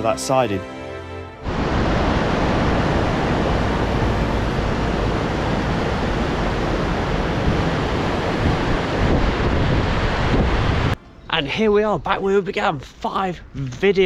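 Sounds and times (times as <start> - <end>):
river rushing over rapids: 1.4 - 11.0.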